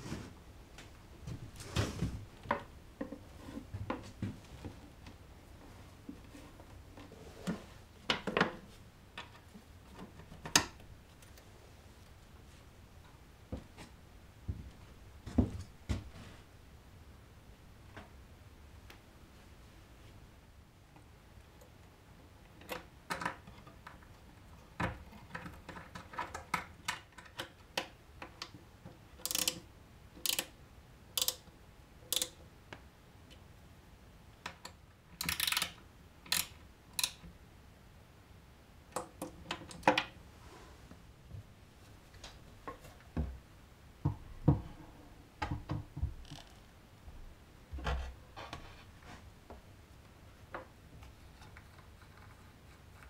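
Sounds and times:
screwdriver turning small screw: 0:29.2 - 0:29.6.

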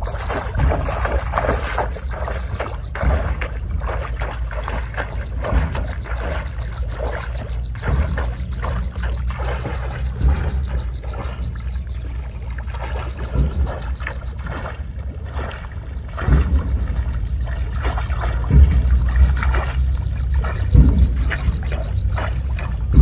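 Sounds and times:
water sloshing and splashing: 0:00.0 - 0:23.0.

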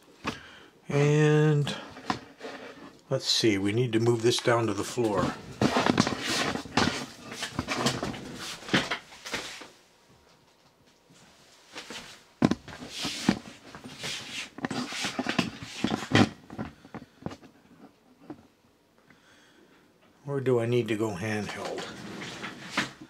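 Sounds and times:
handling rustles and bumps: 0:04.8 - 0:18.6.

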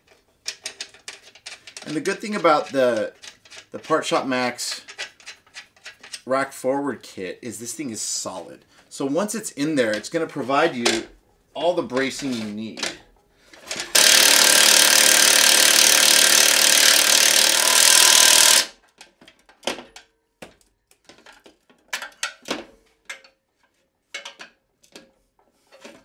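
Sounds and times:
metal clinks and knocks: 0:00.0 - 0:03.9
impact driver hammering bolts: 0:13.6 - 0:18.7.

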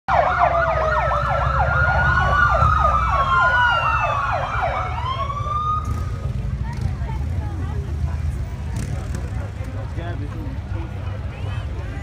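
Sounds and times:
siren wails: 0:00.1 - 0:06.2
siren yelp: 0:00.1 - 0:06.2.

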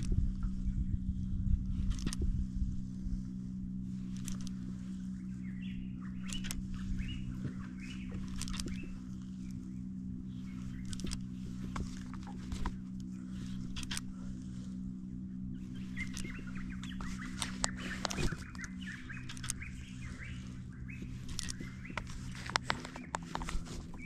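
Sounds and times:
small birds chirping: 0:00.0 - 0:24.0
steady low hum: 0:00.0 - 0:24.0
short clicks: 0:01.8 - 0:02.3, 0:04.1 - 0:04.7, 0:06.2 - 0:09.6, 0:10.7 - 0:14.1, 0:15.9 - 0:20.1, 0:21.0 - 0:23.7.

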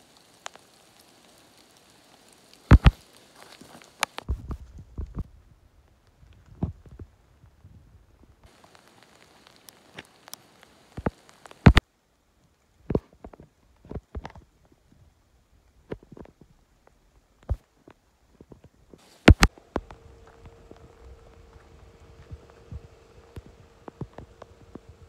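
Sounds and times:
steady hiss: 0:00.0 - 0:25.0
footsteps on leaf litter: 0:02.7 - 0:04.3, 0:19.0 - 0:25.0.

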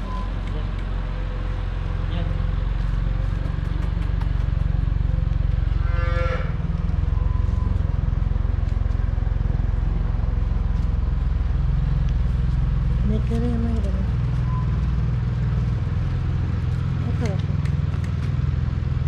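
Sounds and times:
steady low rumble: 0:00.0 - 0:19.0
cow mooing: 0:05.8 - 0:06.6.

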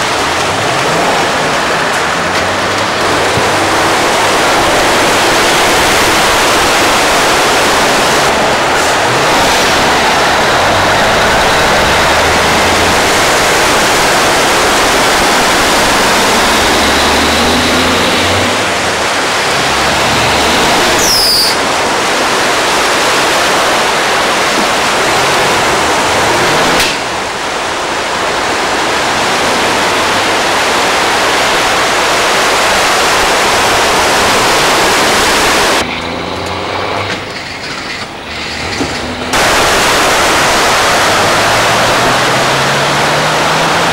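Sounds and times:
floodwater splashing and rushing: 0:00.0 - 0:43.9
truck engine rumble: 0:00.0 - 0:43.9.

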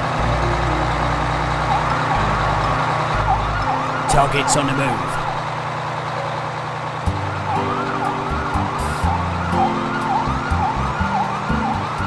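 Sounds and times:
police siren wailing: 0:00.0 - 0:12.0.

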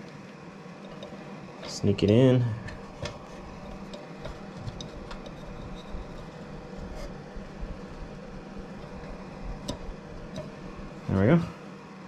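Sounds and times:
faint clicks and handling noises: 0:00.0 - 0:07.2
steady low hum: 0:00.0 - 0:12.0.

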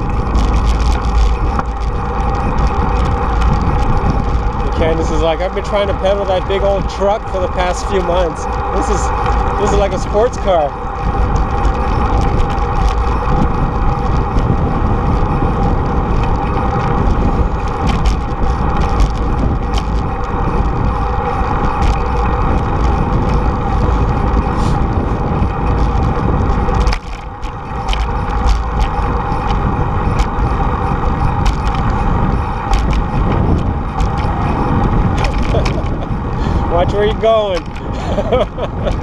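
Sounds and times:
tyre rumble on pavement: 0:00.0 - 0:39.0
wind rush on microphone: 0:00.0 - 0:39.0.

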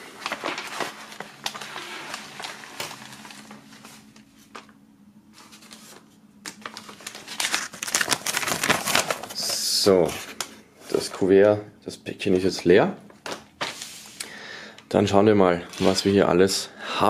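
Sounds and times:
rustling of paper and plastic: 0:00.0 - 0:11.2, 0:15.6 - 0:16.3.

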